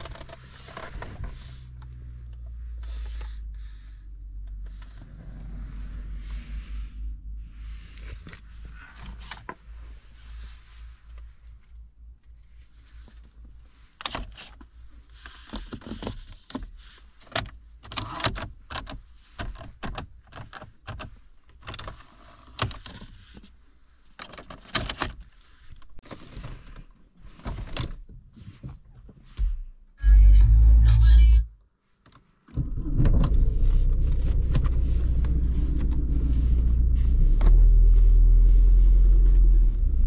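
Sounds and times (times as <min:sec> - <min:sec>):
low steady hum: 0:30.0 - 0:31.6, 0:32.6 - 0:40.0.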